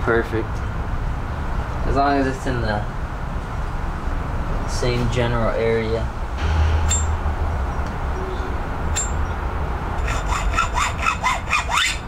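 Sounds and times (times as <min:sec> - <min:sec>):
hand saw cutting metal: 0:10.0 - 0:12.0.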